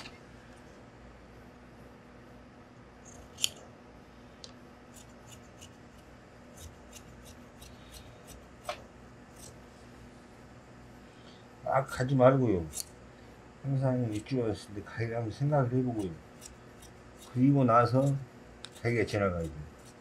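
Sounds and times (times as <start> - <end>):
shears sharp click: 3.0 - 3.6
shears snipping cloth: 3.0 - 3.7, 4.9 - 9.6, 12.5 - 13.0, 13.8 - 20.0.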